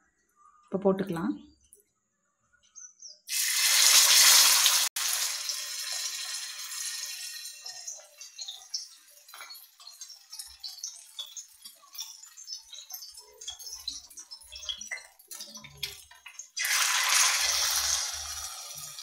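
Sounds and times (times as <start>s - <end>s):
fish sizzling in hot oil: 3.3s - 19.0s
oil crackling and popping: 3.3s - 19.0s.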